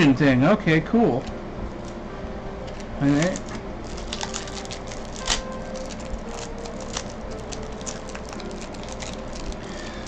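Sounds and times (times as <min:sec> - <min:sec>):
air conditioner and fan hum: 0:00.0 - 0:10.0
foil wrapper crinkling: 0:02.7 - 0:10.0.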